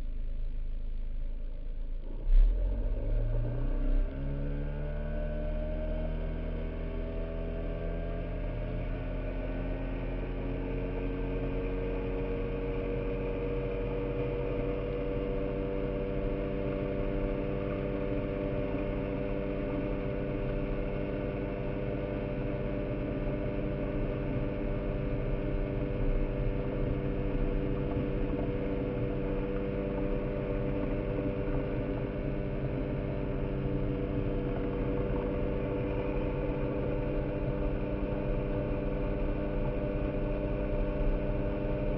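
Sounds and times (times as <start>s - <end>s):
boat motor running: 13.7s - 41.9s.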